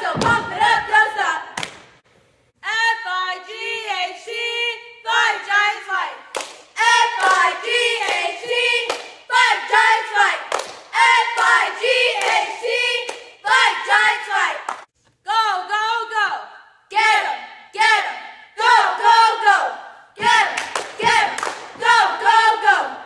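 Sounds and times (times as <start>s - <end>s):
cheerleaders chanting in unison: 0.0s - 1.8s, 2.6s - 23.0s
sharp claps: 1.6s - 2.0s, 6.3s - 8.2s, 8.8s - 9.2s, 10.5s - 11.6s, 20.2s - 21.9s.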